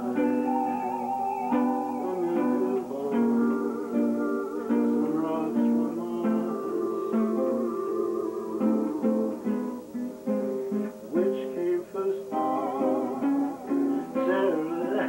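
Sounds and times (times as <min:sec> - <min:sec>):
lap steel guitar slow melody: 0:00.0 - 0:15.0.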